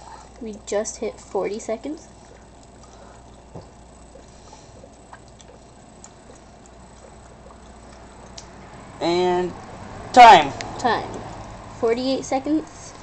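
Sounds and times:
low hum and hiss: 0.0s - 13.0s
gas bubbling in water: 2.1s - 8.4s.

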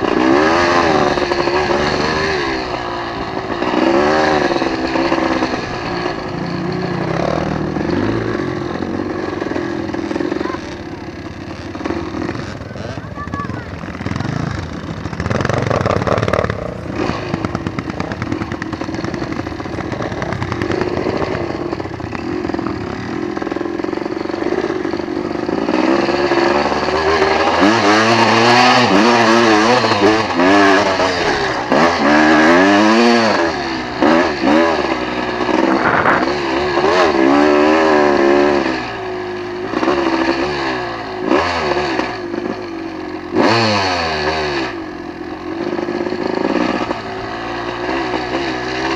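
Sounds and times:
quad engine revving: 0.0s - 48.9s.

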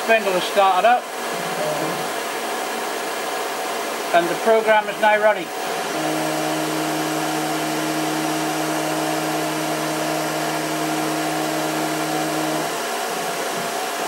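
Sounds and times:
axis drive whine: 0.0s - 14.0s
lathe spindle motor whirring: 0.0s - 14.0s.

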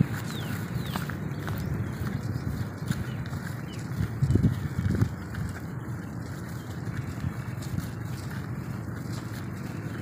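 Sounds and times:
footsteps on grassy path: 0.0s - 10.0s
steady low rumble: 0.0s - 10.0s
high bird chirps: 0.2s - 4.0s.

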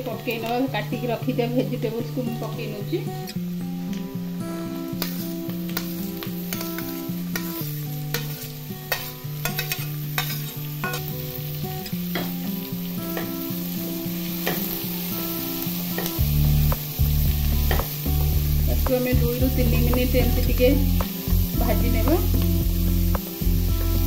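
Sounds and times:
background music: 0.0s - 24.0s
vegetables sizzling in oil: 0.0s - 24.0s
spoon scraping and tapping pot: 5.0s - 11.1s.

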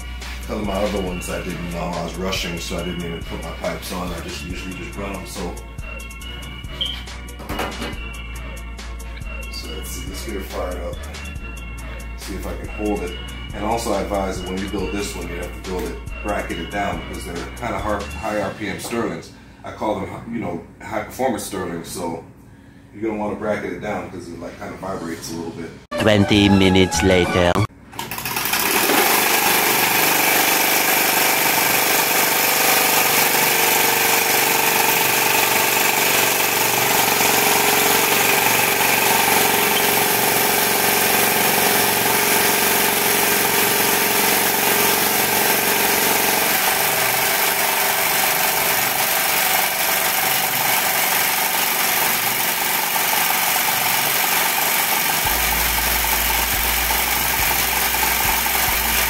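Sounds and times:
stirling engine flywheel whirring: 28.3s - 59.0s.

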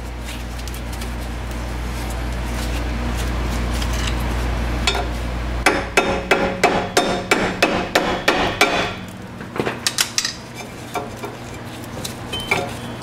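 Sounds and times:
hammer strikes on metal: 4.9s - 10.3s.

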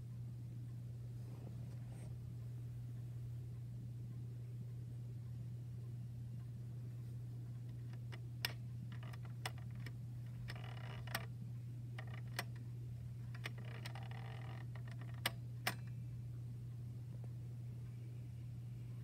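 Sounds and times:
steady low hum: 0.0s - 19.0s
clock hands clicking: 7.5s - 11.3s, 12.0s - 12.6s, 13.3s - 16.0s.

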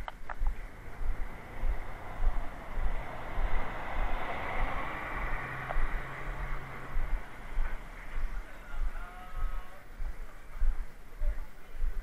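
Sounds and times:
dull low thumps: 0.0s - 12.0s
low engine hum: 0.3s - 12.0s
passing vehicle: 0.4s - 9.8s.

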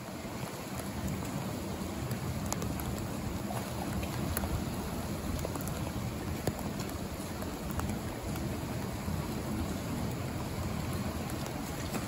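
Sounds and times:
flowing river water: 0.0s - 12.0s.

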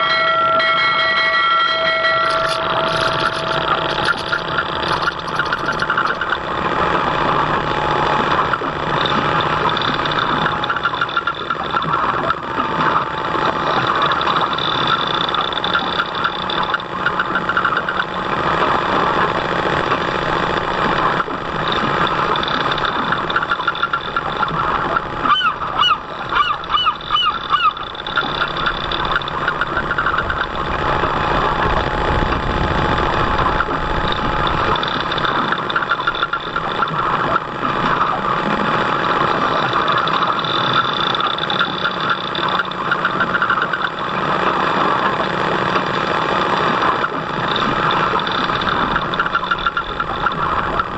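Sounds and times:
model boat motor running: 0.0s - 50.9s
water around hull: 0.0s - 50.9s
goose honking: 25.2s - 28.0s.

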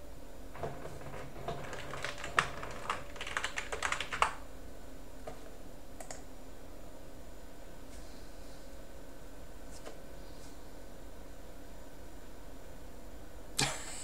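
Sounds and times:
typing on computer keyboard: 1.5s - 4.4s.

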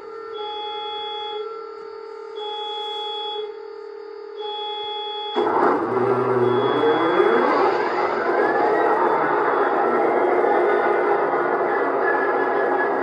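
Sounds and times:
steady electronic hum: 0.0s - 13.0s
diesel engine sound: 5.4s - 13.0s
repeating beep: 6.1s - 10.7s.

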